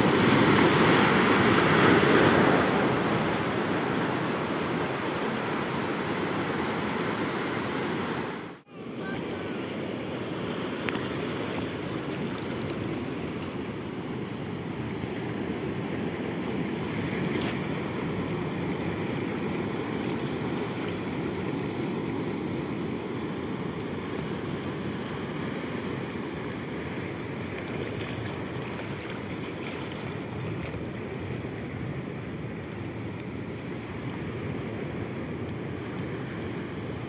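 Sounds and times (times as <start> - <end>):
surf breaking on rocky shore: 0.0 - 21.9.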